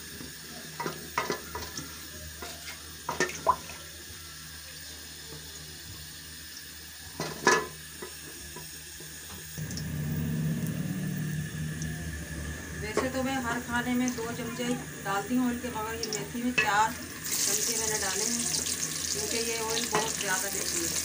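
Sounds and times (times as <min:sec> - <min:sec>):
low hum: 0:09.6 - 0:16.2.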